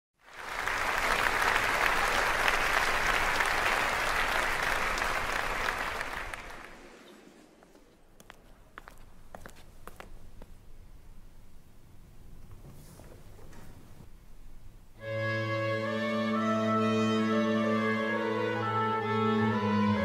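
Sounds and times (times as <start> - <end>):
audience applauding: 0.2 - 7.4.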